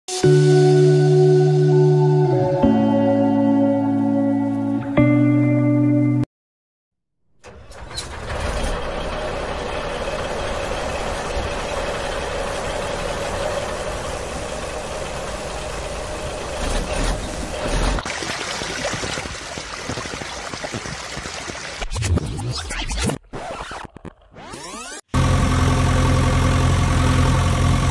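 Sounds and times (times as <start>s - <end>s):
truck engine idling: 7.4s - 17.5s, 25.2s - 27.9s.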